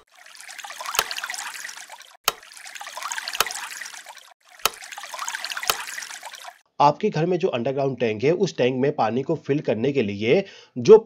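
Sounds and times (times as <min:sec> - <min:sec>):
water splashing on concrete: 0:00.0 - 0:06.6.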